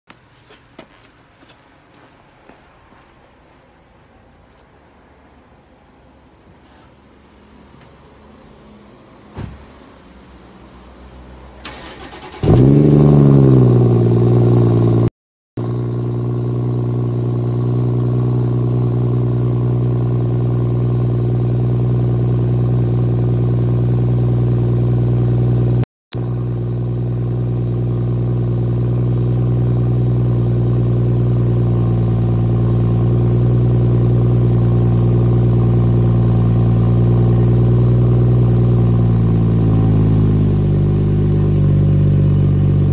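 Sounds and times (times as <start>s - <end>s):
car engine starting and idling: 4.4s - 42.9s
deep exhaust note idling: 12.5s - 42.9s.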